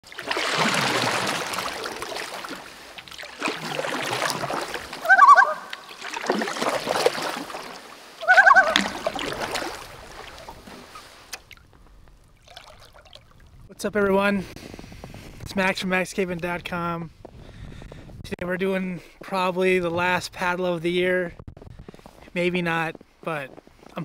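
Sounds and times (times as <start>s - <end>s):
water splashing: 0.0s - 13.7s
honking bird calls: 5.0s - 5.9s, 8.2s - 9.2s.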